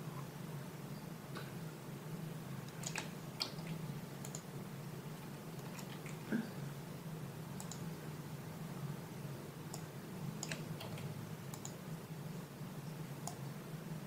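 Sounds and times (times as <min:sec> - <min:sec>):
faint low hum: 0:00.0 - 0:14.0
mouse and keyboard clicks: 0:02.7 - 0:04.5, 0:05.6 - 0:06.2, 0:07.6 - 0:07.8, 0:09.7 - 0:11.8.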